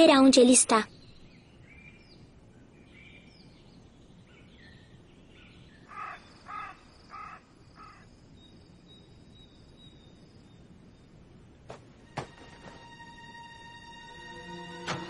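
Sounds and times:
low outdoor hiss: 0.0 - 15.0
faint bird chirps: 0.6 - 11.2
crow cawing: 5.9 - 8.1.

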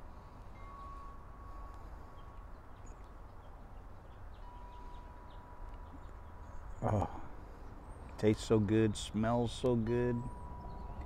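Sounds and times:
wind chime ringing: 0.5 - 2.5, 4.4 - 5.7, 9.8 - 11.0.

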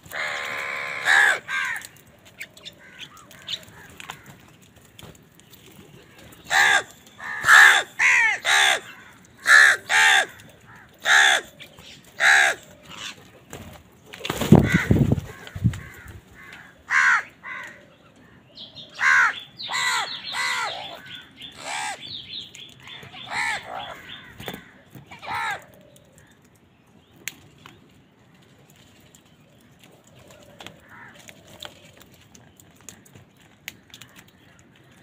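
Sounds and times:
crows cawing: 0.0 - 2.0, 2.7 - 4.5, 6.4 - 13.2, 14.6 - 22.1, 22.8 - 26.4, 30.4 - 31.8.

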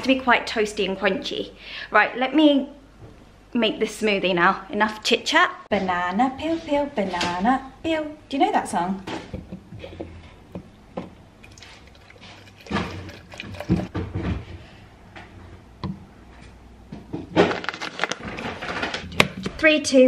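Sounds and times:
liquid pouring into blender cup: 11.4 - 13.9.

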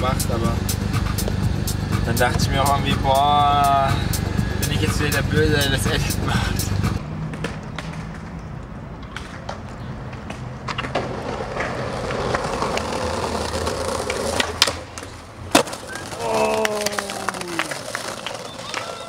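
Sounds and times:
skateboard wheels rolling on paving: 0.0 - 3.3, 4.8 - 19.0
skateboard clacking on stone ledge: 9.0 - 19.0.

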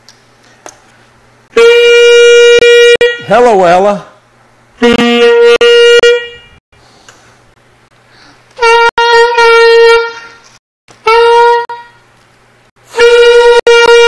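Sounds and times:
saxophone long held tones: 1.5 - 3.3, 4.8 - 6.6, 8.6 - 10.4, 11.0 - 12.0, 12.8 - 14.0.

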